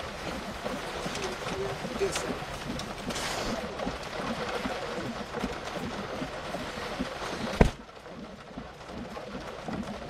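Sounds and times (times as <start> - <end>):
low thuds: 0.0 - 7.9
storm wind and rain: 0.0 - 10.0.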